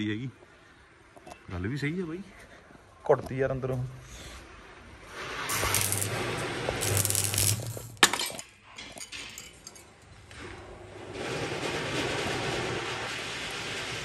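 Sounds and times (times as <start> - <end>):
steady noise: 5.0 - 8.4
crackling welding arc: 5.1 - 8.4
metal clinks: 6.8 - 10.1.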